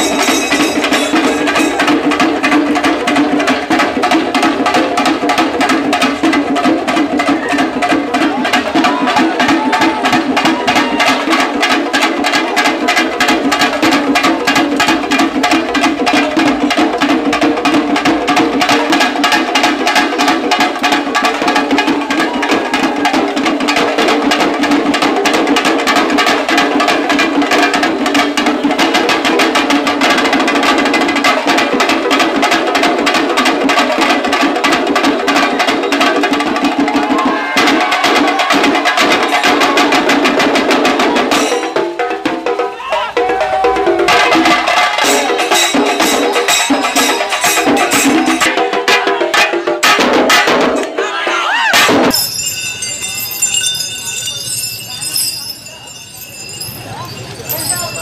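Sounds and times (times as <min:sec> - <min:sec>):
drums in fast rhythm: 0:00.0 - 0:58.0.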